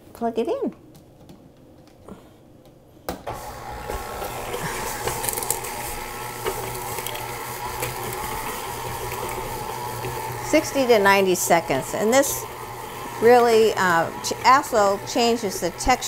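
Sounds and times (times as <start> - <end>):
stand mixer motor humming: 3.3 - 16.0.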